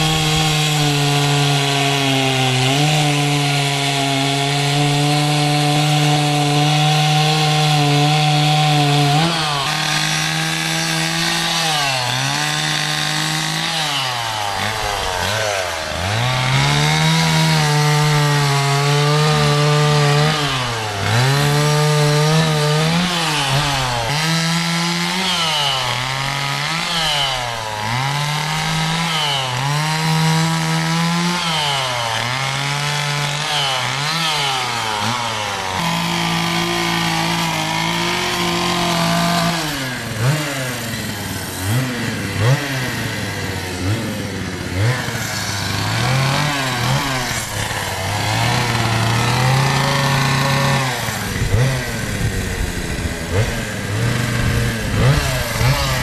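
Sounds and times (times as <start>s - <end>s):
chainsaw carving wood: 0.0s - 56.0s.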